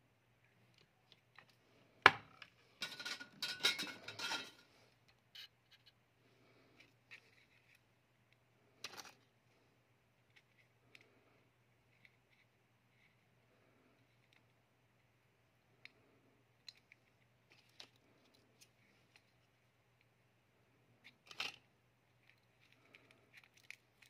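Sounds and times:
metal tools clattering and rattling: 0:02.8 - 0:04.6.

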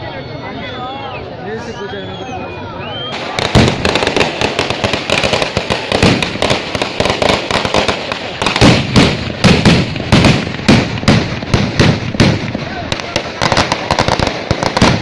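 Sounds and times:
firecrackers cracking: 0:03.1 - 0:15.0
heavier firecracker blasts: 0:03.1 - 0:15.0.

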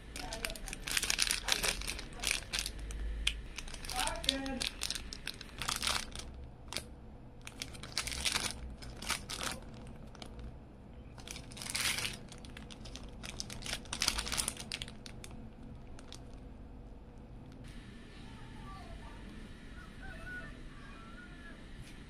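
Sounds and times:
plastic bags crinkling: 0:00.0 - 0:10.5, 0:11.2 - 0:16.4.

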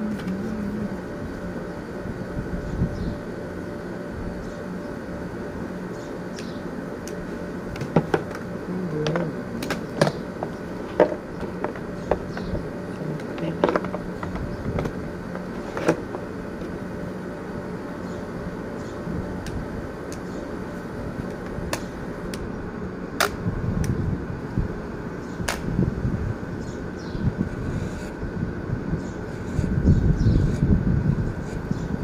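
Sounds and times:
wind rumble on microphone: 0:02.0 - 0:03.2, 0:23.3 - 0:32.0
hair clipper buzzing: 0:27.4 - 0:28.2, 0:29.2 - 0:31.8.

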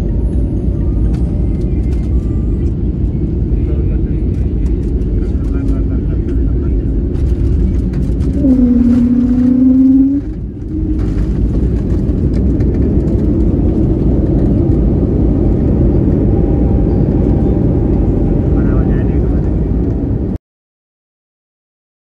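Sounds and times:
jet engines and wheels rumbling: 0:00.0 - 0:20.4
humming tone: 0:07.2 - 0:18.7.

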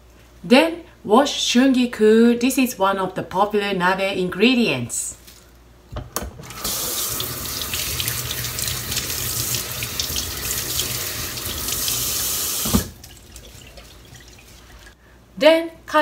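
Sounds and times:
greens rinsed by hand: 0:06.6 - 0:15.0
tap running into steel sink: 0:12.6 - 0:13.0.

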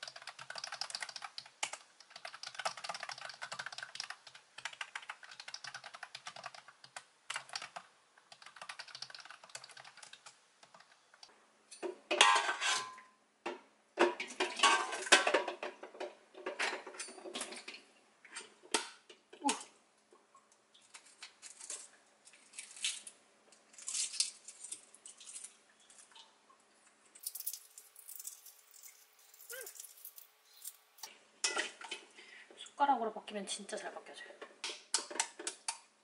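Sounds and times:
typing on a computer keyboard: 0:00.0 - 0:11.3.

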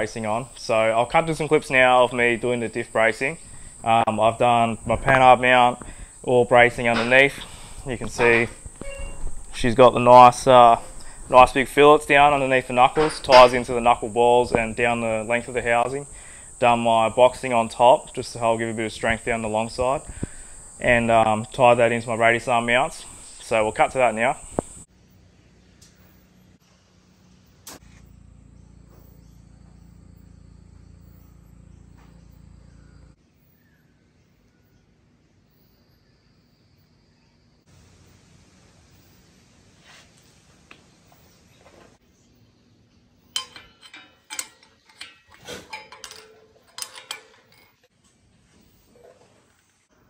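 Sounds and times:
high insect drone: 0:00.0 - 0:25.3, 0:26.0 - 0:33.2
low steady hum: 0:00.0 - 0:34.9
metal plate clinking and scraping: 0:06.8 - 0:09.8, 0:12.8 - 0:13.8, 0:43.3 - 0:47.9.

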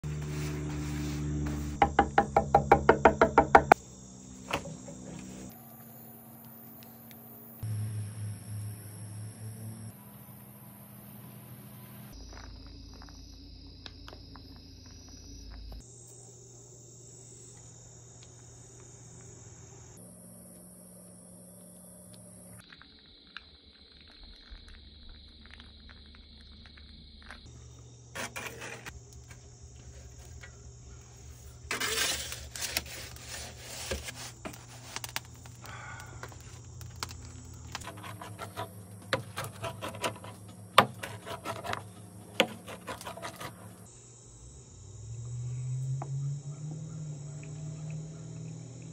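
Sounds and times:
crickets chirping: 0:01.4 - 0:48.9
clicks taps and scrapes of metal peel: 0:36.2 - 0:43.6.

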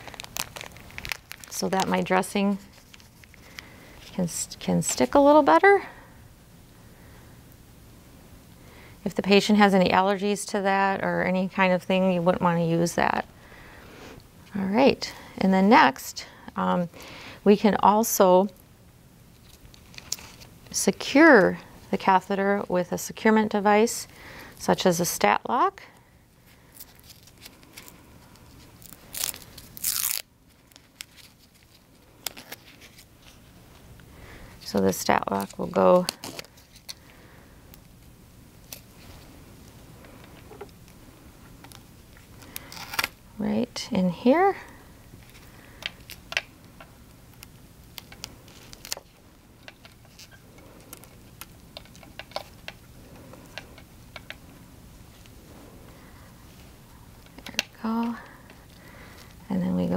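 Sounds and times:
paper crinkling and rustling: 0:00.0 - 0:04.2, 0:26.6 - 0:33.8, 0:34.6 - 0:37.1, 0:47.9 - 0:52.8.

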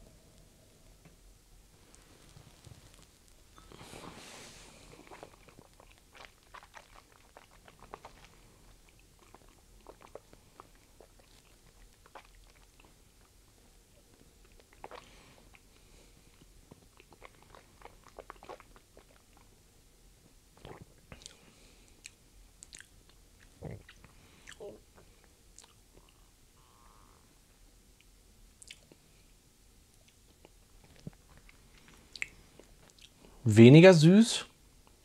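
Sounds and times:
breathy sip of air: 0:03.6 - 0:05.2
wet mouth clicks and smacks: 0:05.1 - 0:12.9, 0:14.4 - 0:15.6, 0:20.6 - 0:24.6, 0:25.6 - 0:26.2, 0:28.0 - 0:29.0, 0:29.9 - 0:33.2.

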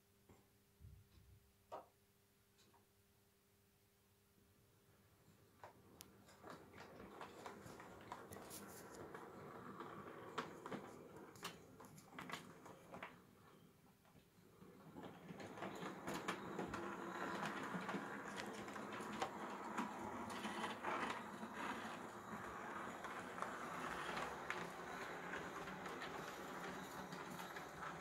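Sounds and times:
model train motor whirring: 0:16.0 - 0:28.0.

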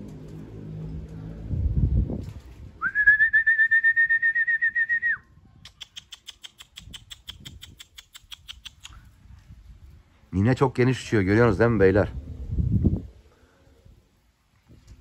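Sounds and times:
short low rumble: 0:00.0 - 0:03.3
warbling high whistle: 0:02.8 - 0:05.2
rapid high pips: 0:05.7 - 0:09.1.

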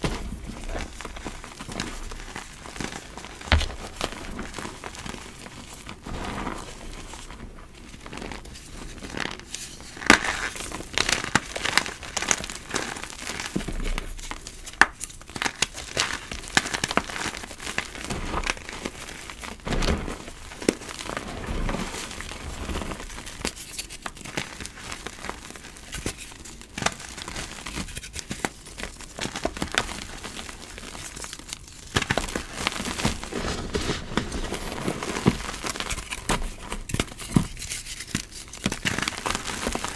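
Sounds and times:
soft powdery rubbing: 0:00.3 - 0:10.3, 0:17.0 - 0:23.6
chalk crunching: 0:00.5 - 0:05.4, 0:15.0 - 0:29.4.

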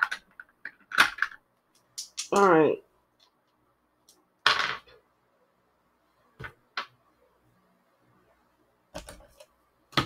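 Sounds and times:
dice rattling and clicking: 0:00.0 - 0:02.5.

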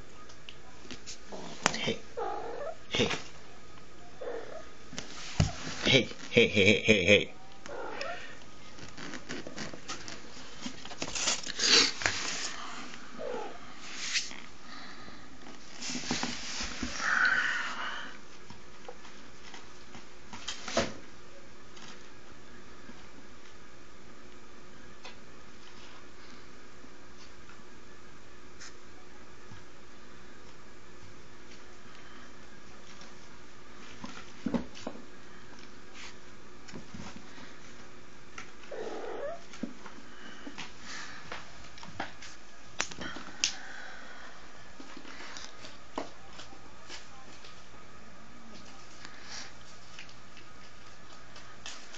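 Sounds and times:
kitten cry: 0:07.6 - 0:08.4.

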